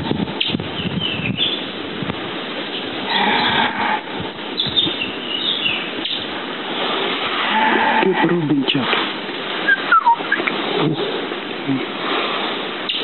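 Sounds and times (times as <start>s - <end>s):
steady background hiss: 0.0s - 13.0s
small birds singing: 0.3s - 1.8s, 2.6s - 3.7s, 4.5s - 7.0s, 9.6s - 11.8s.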